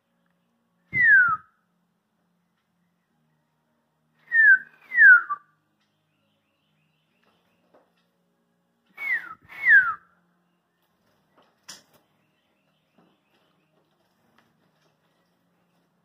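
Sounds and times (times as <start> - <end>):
person whistling slurred notes: 0.9 - 1.5, 4.3 - 5.4, 9.0 - 10.0.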